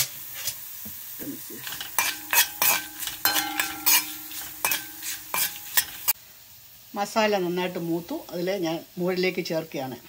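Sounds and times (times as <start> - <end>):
food sizzling in oil: 0.0 - 10.0
spoon clinking and scraping pan: 1.6 - 6.2.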